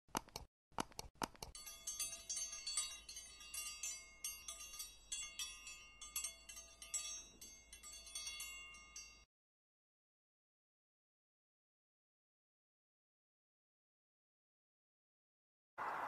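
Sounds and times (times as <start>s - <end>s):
wind chimes tinkling: 1.5s - 9.3s.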